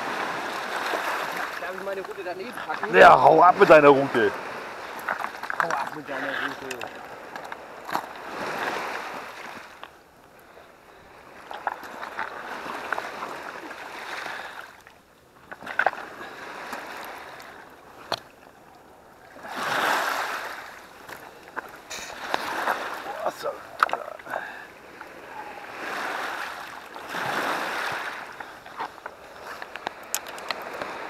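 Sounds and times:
waves washing over pebbles: 0:00.0 - 0:18.4, 0:19.2 - 0:31.0
clicks of stones and fishing gear: 0:05.0 - 0:08.8, 0:18.0 - 0:18.3, 0:23.7 - 0:24.4, 0:28.4 - 0:31.0.

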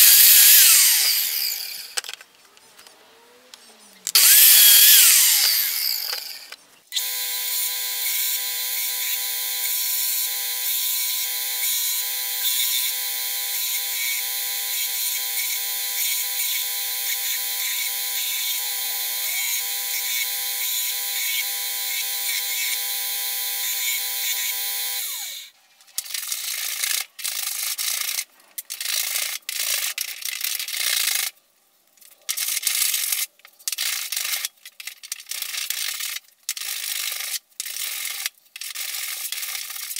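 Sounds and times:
mitre saw cutting wood: 0:00.0 - 0:02.0, 0:04.0 - 0:25.5
belt grinder whining: 0:00.0 - 0:02.1, 0:04.1 - 0:25.5.

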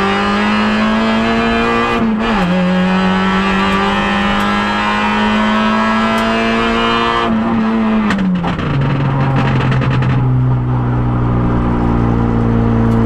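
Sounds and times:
car engine revving: 0:00.0 - 0:13.0
exhaust crackling: 0:03.1 - 0:13.0.

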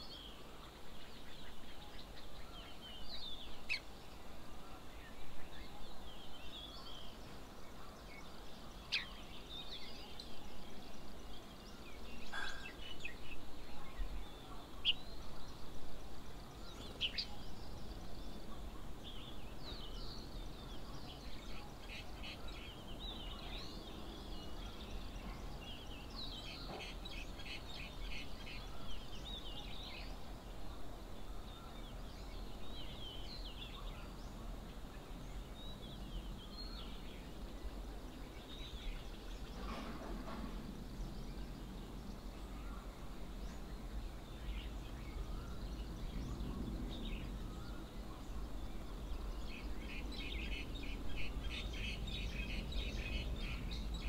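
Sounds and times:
birds chirping and calling: 0:05.3 - 0:15.6, 0:38.4 - 0:54.0.

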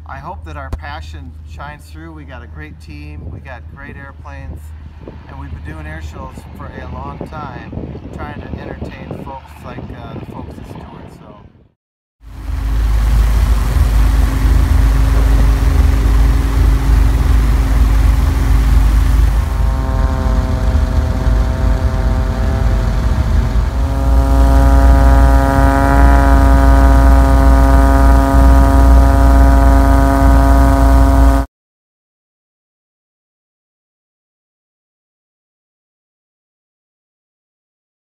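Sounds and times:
wind rush: 0:03.2 - 0:11.5, 0:12.3 - 0:31.5
propeller airplane engine drone: 0:12.3 - 0:31.5
high pitched tone: 0:12.5 - 0:31.5.

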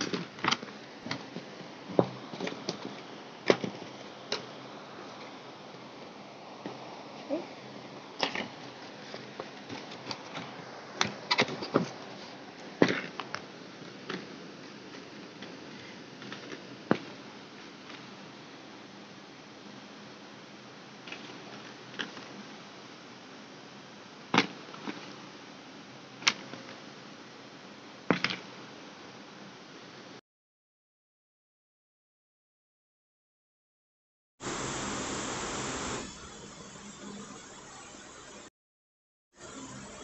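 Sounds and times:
steady hiss: 0:34.4 - 0:38.2.

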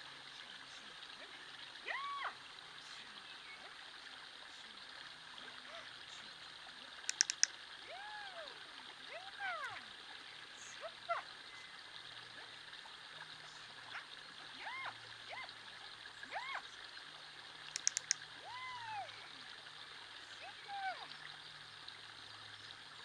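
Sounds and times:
running water rushing: 0:00.0 - 0:23.0
sharp clicks: 0:07.1 - 0:07.6, 0:17.7 - 0:18.2.

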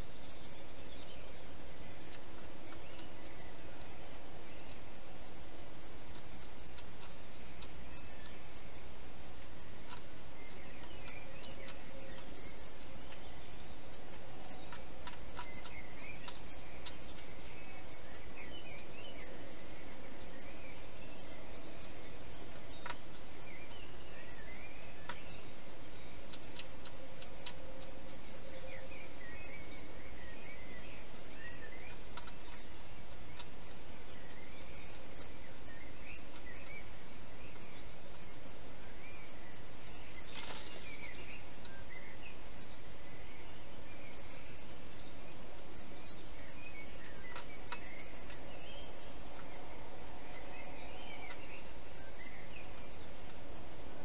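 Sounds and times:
faint bird chirps: 0:00.0 - 0:54.0
steady hiss: 0:00.0 - 0:54.0
soft clicks: 0:31.6 - 0:35.6, 0:47.0 - 0:48.5.

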